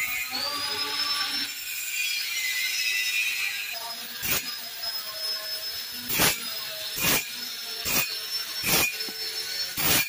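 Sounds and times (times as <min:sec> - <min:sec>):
faint high whine: 0:00.0 - 0:10.0
welding arc crackle: 0:01.5 - 0:04.9, 0:06.0 - 0:10.0.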